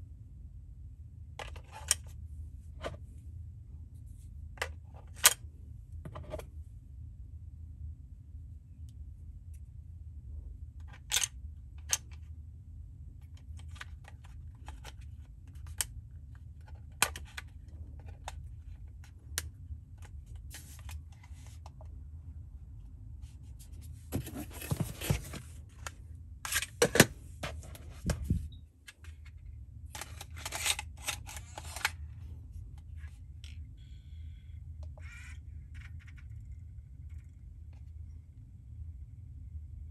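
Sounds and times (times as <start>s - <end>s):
clicking and scraping of case: 24.1s - 32.0s
faint high whine: 32.9s - 39.9s.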